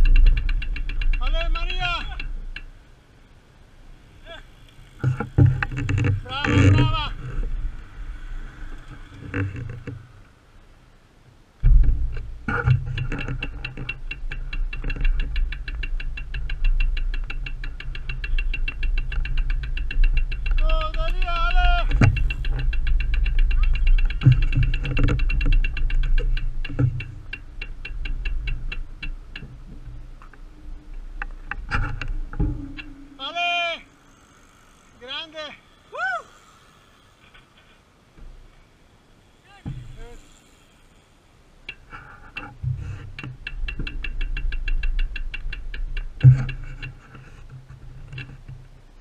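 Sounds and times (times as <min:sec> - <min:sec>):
bicycle freehub ticking: 0:00.0 - 0:03.0, 0:12.1 - 0:37.9, 0:39.1 - 0:48.5
wind rumble on microphone: 0:11.6 - 0:33.2, 0:42.4 - 0:49.0.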